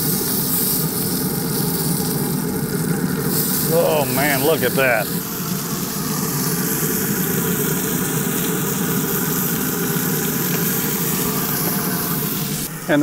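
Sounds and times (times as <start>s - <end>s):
frog legs sizzling in skillet: 0.0s - 13.0s.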